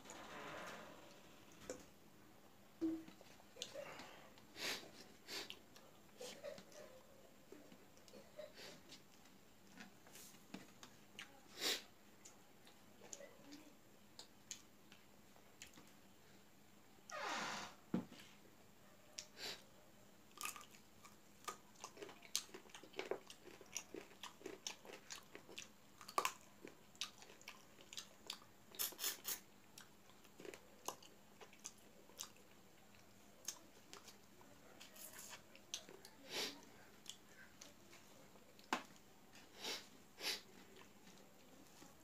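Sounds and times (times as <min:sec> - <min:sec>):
man chewing and lip-smacking: 0:14.2 - 0:16.0, 0:20.3 - 0:36.2.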